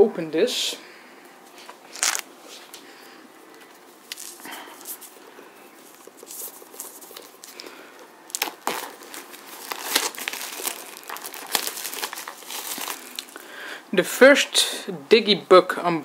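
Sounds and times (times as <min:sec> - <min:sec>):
plastic shrink-wrap crinkling and tearing: 0:01.9 - 0:02.3, 0:04.1 - 0:05.1, 0:05.8 - 0:13.5.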